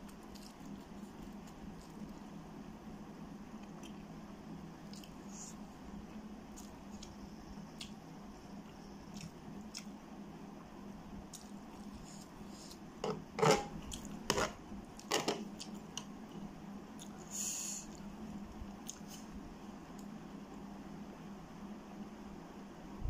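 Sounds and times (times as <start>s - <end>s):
steady low hum: 0.0s - 23.0s
metal spoon scraping tray: 13.1s - 13.7s.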